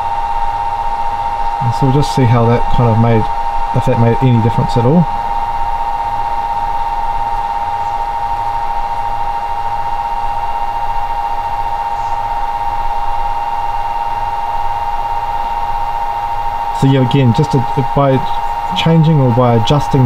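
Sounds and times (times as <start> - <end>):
throbbing low hum: 0.0 - 10.8
high electrical whine: 0.0 - 20.0.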